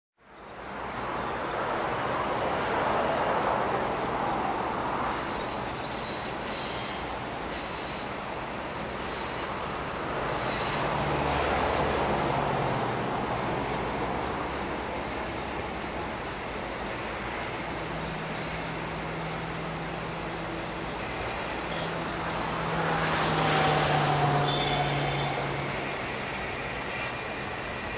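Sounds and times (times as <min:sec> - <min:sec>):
train wheels squealing: 0:04.8 - 0:09.6, 0:10.3 - 0:10.9, 0:11.8 - 0:17.7, 0:18.4 - 0:27.9
diesel engine drone: 0:07.2 - 0:27.7.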